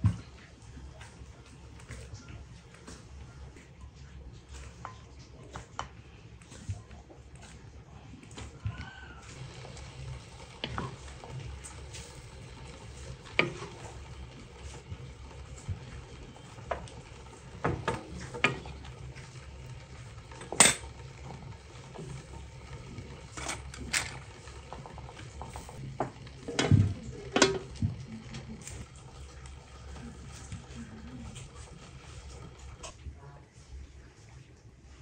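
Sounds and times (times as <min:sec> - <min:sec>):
wooden spatula scraping a pan: 0:09.3 - 0:23.8.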